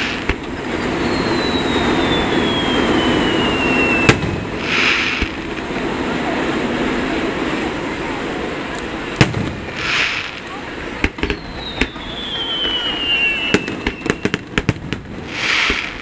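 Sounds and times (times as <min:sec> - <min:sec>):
falling firework whistle: 0:00.0 - 0:05.4, 0:09.2 - 0:16.0
firework shells bursting: 0:00.0 - 0:05.7, 0:09.1 - 0:16.0.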